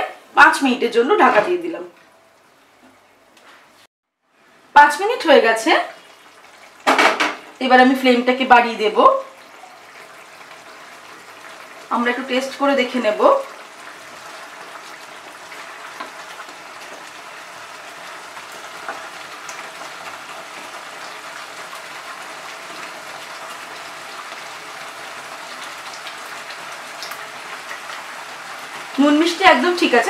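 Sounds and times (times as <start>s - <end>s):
curry bubbling in a pan: 5.9s - 7.1s, 9.2s - 29.1s.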